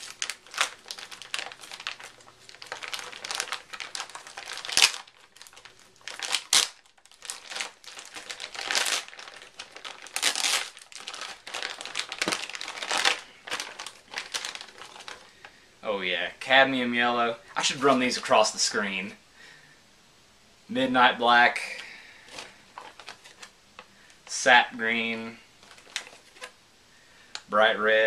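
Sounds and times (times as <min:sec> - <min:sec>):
knife cutting packaging: 0:00.0 - 0:15.2
packaging crinkling and rustling: 0:00.0 - 0:15.6, 0:22.2 - 0:24.4, 0:25.6 - 0:26.6.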